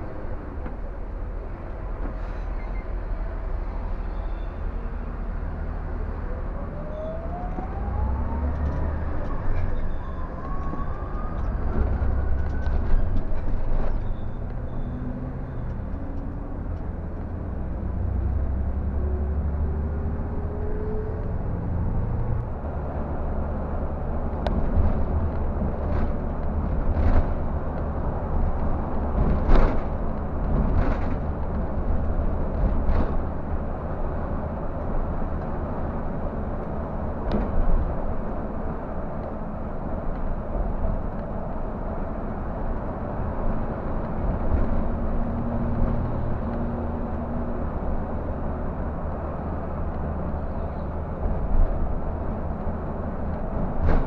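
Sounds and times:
diesel coach engine: 0.0s - 54.0s
low road rumble: 0.0s - 54.0s.

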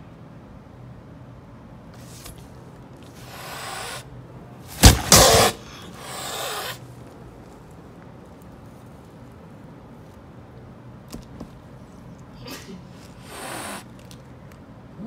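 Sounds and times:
cat hissing: 3.0s - 4.1s, 4.7s - 6.9s, 13.0s - 13.9s
cat explosive outburst: 4.7s - 6.8s.

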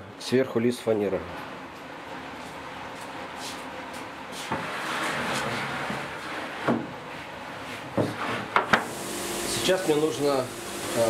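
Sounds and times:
plywood sheet scraping: 4.3s - 8.6s.

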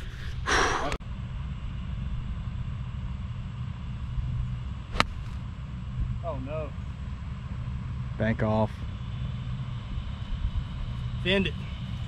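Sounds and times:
golf club striking ball: 4.9s - 5.4s.

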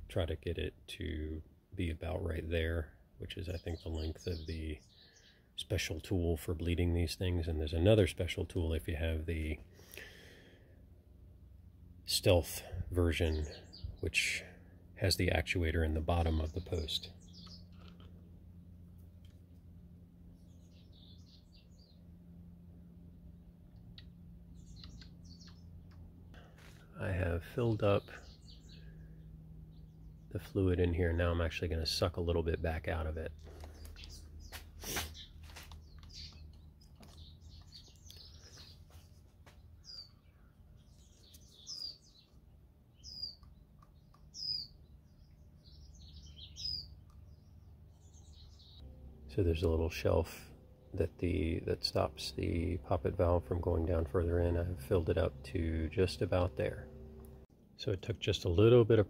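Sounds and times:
low steady hum: 0.0s - 59.0s
faint bird chirps: 3.4s - 5.5s, 22.9s - 30.6s, 33.3s - 48.8s.

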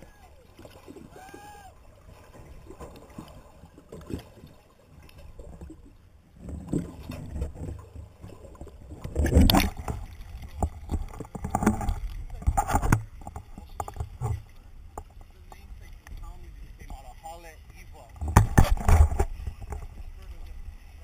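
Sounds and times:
underwater gurgling and sloshing: 0.0s - 21.0s
water splashing: 0.0s - 21.0s
underwater knocks: 8.6s - 16.2s, 18.1s - 20.0s.

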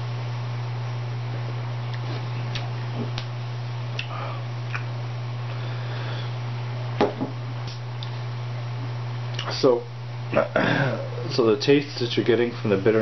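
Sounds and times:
steady low hum: 0.0s - 13.0s
bottle knocking on table: 7.0s - 7.4s.

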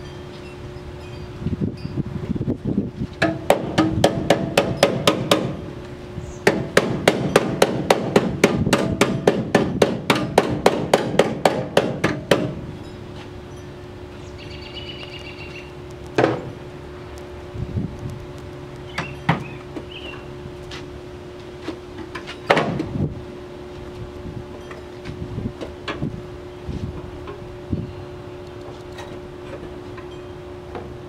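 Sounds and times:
steady low hum: 0.0s - 31.0s
hammer tapping on metal: 3.2s - 5.6s, 6.5s - 12.6s.

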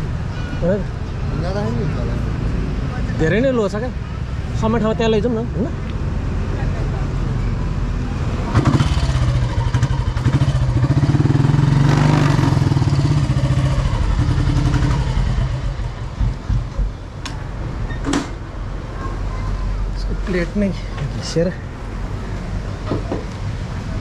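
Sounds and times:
motorcycle engine running: 8.6s - 16.9s.

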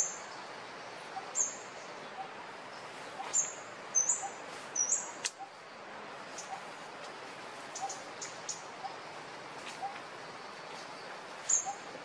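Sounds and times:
steady background hiss: 0.0s - 12.0s
small bird chirping: 7.7s - 9.0s, 10.7s - 11.9s.

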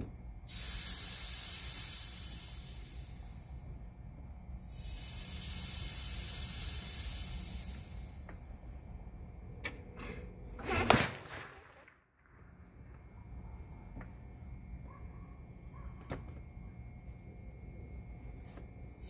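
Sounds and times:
pressurised gas hissing: 0.4s - 4.0s, 4.6s - 8.7s.

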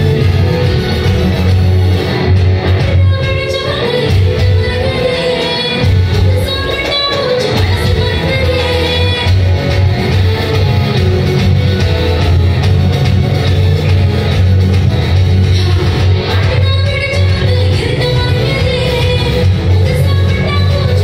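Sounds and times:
heavy pulsing bass: 0.0s - 6.8s, 7.5s - 21.0s
electric guitar: 0.0s - 21.0s
woman singing: 2.7s - 9.4s, 15.5s - 21.0s.

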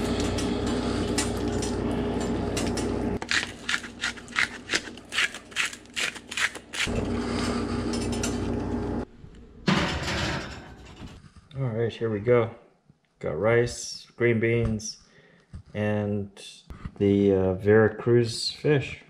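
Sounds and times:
spice grinder crunching: 3.2s - 7.2s.

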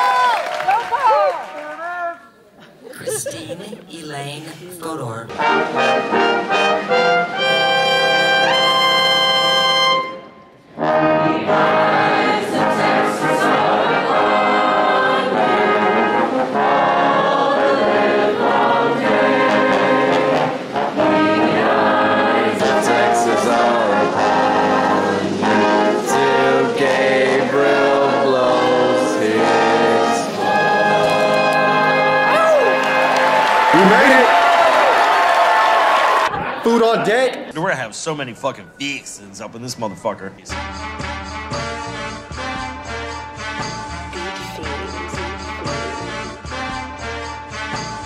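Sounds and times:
brass ensemble playing: 5.3s - 35.4s, 40.5s - 48.0s.

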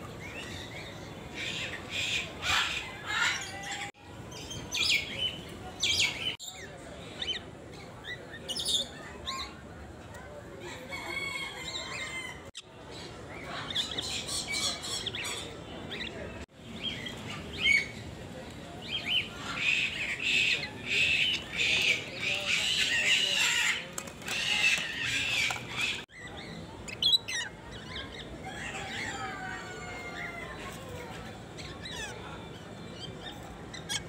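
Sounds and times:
parrots squawking and chattering: 0.3s - 5.3s, 10.9s - 16.1s, 18.8s - 34.0s.

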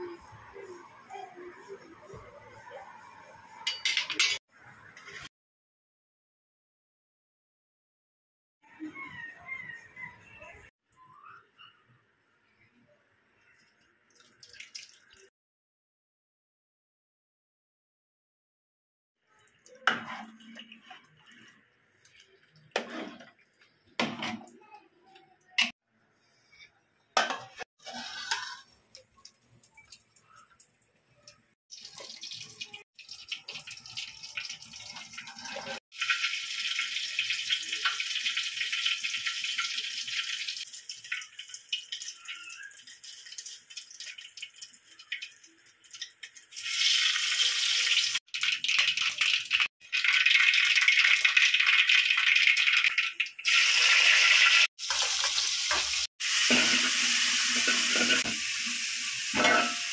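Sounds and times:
metal pots and utensils knocking: 3.7s - 4.4s, 27.2s - 28.6s, 54.9s - 58.4s, 59.4s - 59.9s
water pouring into metal pot: 13.5s - 15.3s, 27.8s - 59.9s.

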